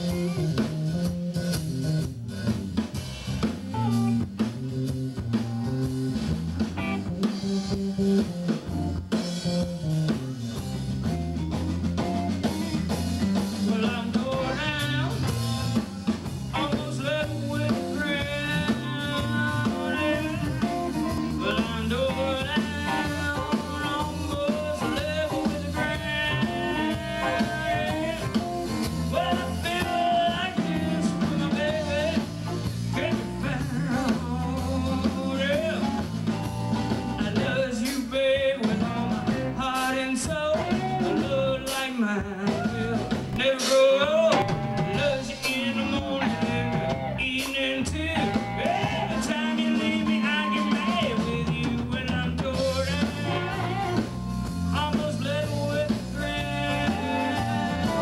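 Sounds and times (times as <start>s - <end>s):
bass guitar: 0.0s - 58.0s
drums: 0.0s - 58.0s
electric guitars: 0.0s - 58.0s
person singing lead vocal: 13.2s - 58.0s.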